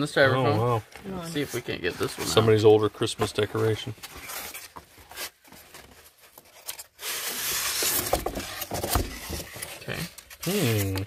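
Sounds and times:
soft handling noises: 0.0 - 11.0
styrofoam scraping on cardboard: 1.2 - 2.6, 6.8 - 11.0.

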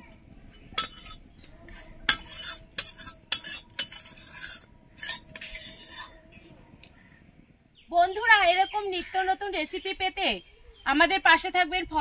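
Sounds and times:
spoon scraping a cooking pot: 0.4 - 6.5.

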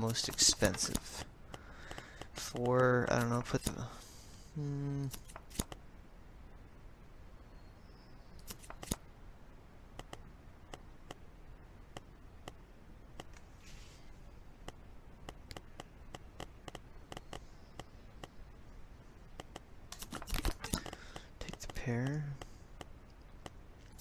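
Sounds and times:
computer mouse clicking: 0.0 - 3.7, 10.0 - 11.2, 14.6 - 18.4, 19.4 - 24.0.

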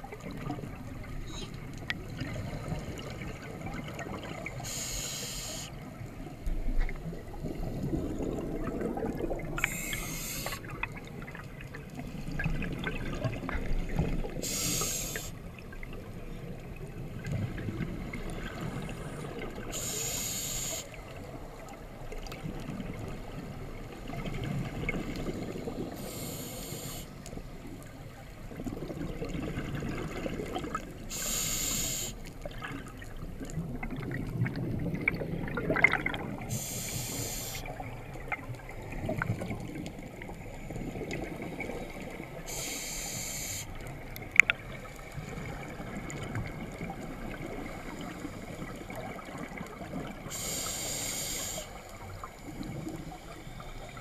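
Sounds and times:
regulator inhale hiss: 4.6 - 5.9, 9.6 - 10.7, 14.4 - 15.4, 19.7 - 21.1, 25.9 - 27.2, 31.1 - 32.3, 36.5 - 37.7, 42.4 - 43.9, 50.2 - 54.0
gurgle of exhaled bubbles: 6.5 - 14.8, 28.5 - 31.1, 32.4 - 36.7, 37.6 - 42.6, 43.9 - 50.5.

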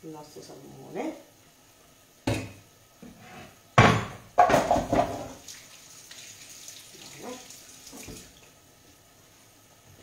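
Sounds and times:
tap water running into sink: 4.4 - 8.6.

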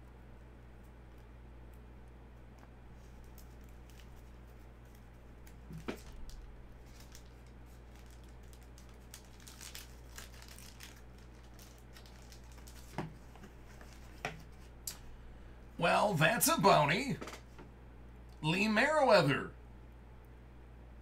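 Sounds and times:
low steady hum: 0.0 - 21.0
plastic sleeve crinkling: 3.0 - 14.8
trading cards rustling: 3.0 - 14.8.

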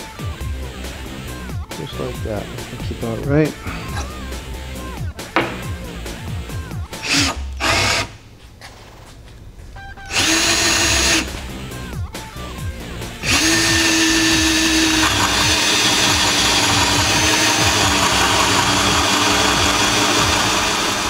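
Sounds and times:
power drill cutting with hole saw: 7.0 - 8.2, 10.1 - 11.3, 13.2 - 21.0.

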